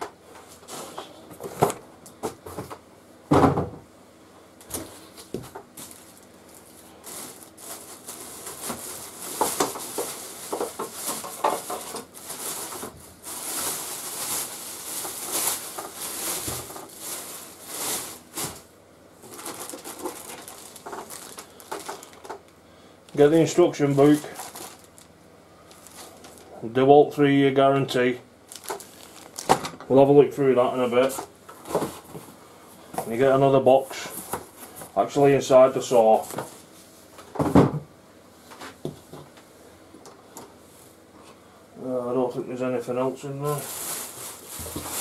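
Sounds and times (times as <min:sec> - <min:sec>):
knocks against cardboard box: 0:03.3 - 0:03.8
plastic wrapping crinkling: 0:05.4 - 0:22.5, 0:23.1 - 0:26.6, 0:28.5 - 0:29.8, 0:43.3 - 0:45.0.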